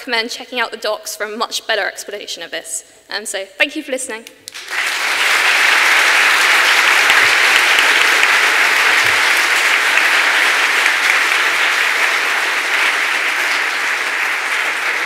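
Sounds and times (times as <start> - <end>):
large audience applauding: 4.5 - 15.0.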